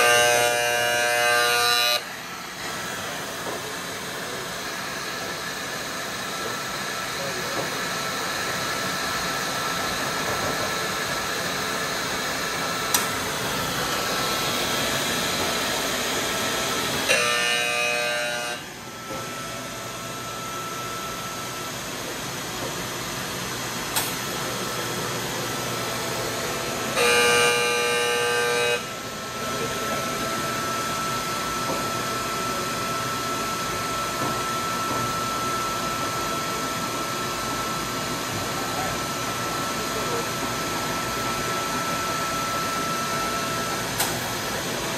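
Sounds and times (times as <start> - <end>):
horn blasts: 0.0 - 2.1, 17.1 - 18.6, 26.9 - 28.9
nut roaster machinery running: 0.0 - 44.9.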